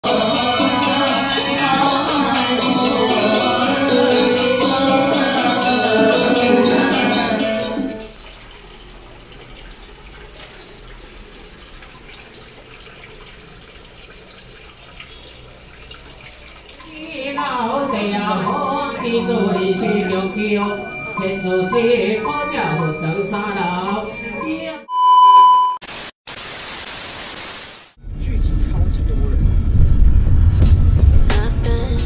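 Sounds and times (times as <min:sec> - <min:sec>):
music with a steady beat: 0:00.0 - 0:08.0
water trickling from a fountain: 0:08.0 - 0:18.5.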